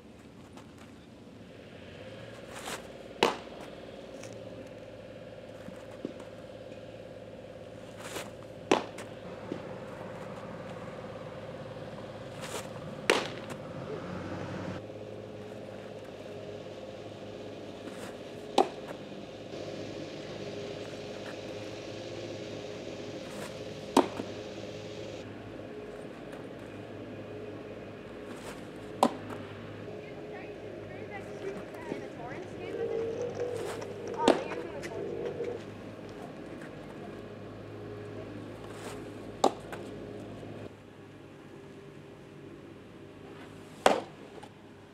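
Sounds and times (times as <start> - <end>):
baseballs popping into a mitt: 3.2 - 3.5, 8.7 - 9.6, 13.0 - 13.6, 28.9 - 29.4, 39.4 - 39.8, 43.8 - 44.1.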